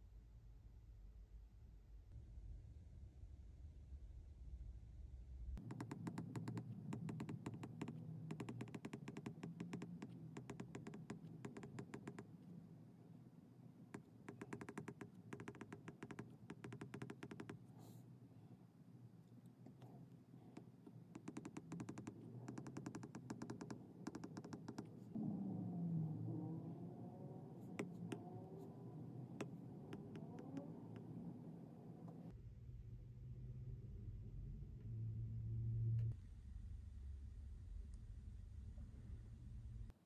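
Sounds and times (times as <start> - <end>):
stylus tapping on glass screen: 5.6 - 12.3, 14.0 - 17.6, 20.6 - 24.9.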